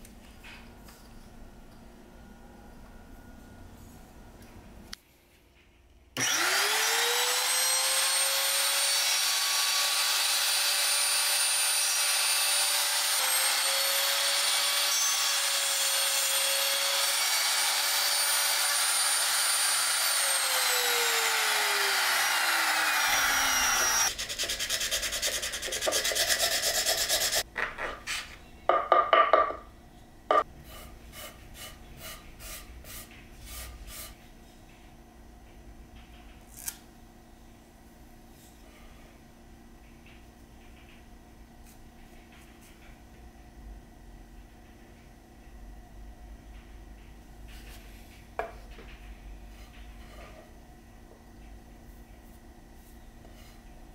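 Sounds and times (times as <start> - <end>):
router whining while cutting wood: 6.2 - 24.1.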